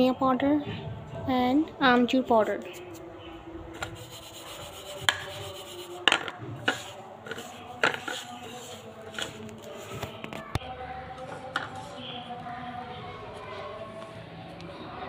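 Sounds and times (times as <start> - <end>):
fingers rubbing spice powder: 3.8 - 9.9.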